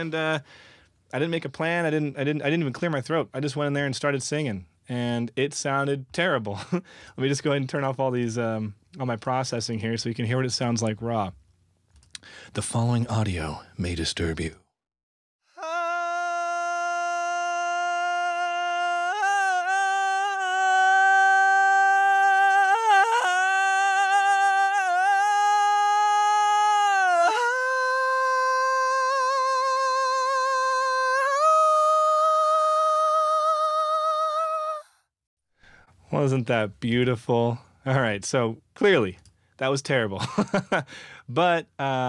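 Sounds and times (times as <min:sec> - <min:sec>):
man singing wordlessly: 0:15.6 - 0:34.8.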